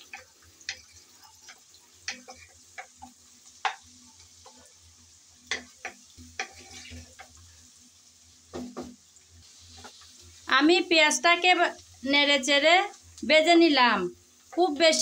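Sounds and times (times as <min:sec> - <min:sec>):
spatula scraping a pan: 0:00.0 - 0:07.6, 0:08.4 - 0:10.4
onions sizzling in oil: 0:00.0 - 0:15.0.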